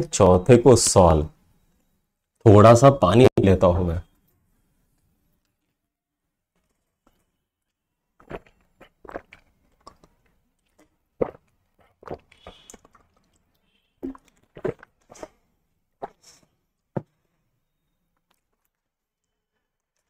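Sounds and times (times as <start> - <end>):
person gulping water: 8.2 - 15.4, 16.0 - 16.4
plastic bottle crinkling: 11.2 - 13.4, 14.0 - 15.4.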